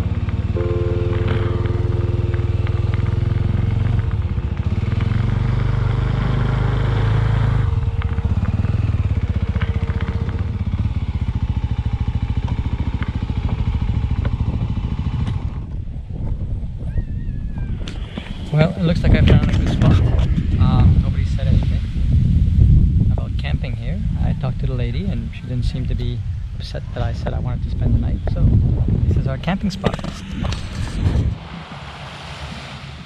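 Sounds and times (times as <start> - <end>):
motorcycle engine chugging: 0.0 - 15.9.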